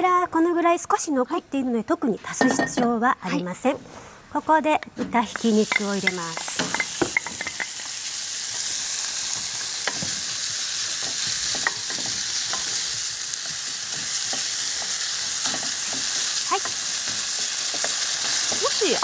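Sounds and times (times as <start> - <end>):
wooden spatula tapping and scraping: 5.2 - 7.7, 10.9 - 19.0
meat sizzling in hot oil: 5.4 - 19.0.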